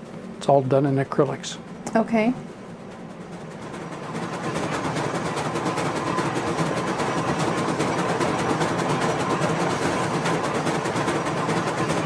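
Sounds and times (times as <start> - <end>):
model train clatter: 2.9 - 12.0.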